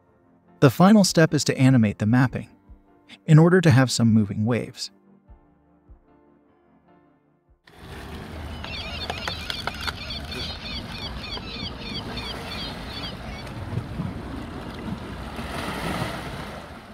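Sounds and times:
waves washing: 7.7s - 16.9s
wind: 7.7s - 16.9s.

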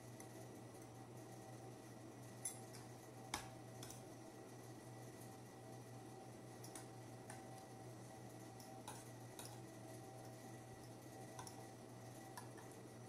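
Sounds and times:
cutlery clicking on a plate: 2.4s - 4.0s, 6.6s - 7.4s, 8.6s - 9.6s, 11.4s - 11.6s.

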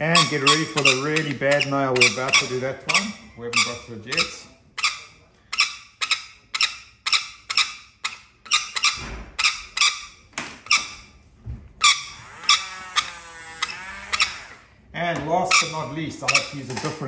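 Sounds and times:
parrot screeching: 0.0s - 11.2s, 11.8s - 14.8s, 15.5s - 17.0s
rotary nail grinder whirring: 12.1s - 14.7s.

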